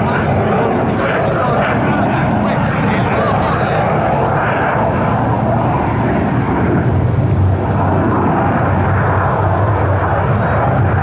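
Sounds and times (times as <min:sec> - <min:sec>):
jet engine roaring: 0:00.0 - 0:11.0.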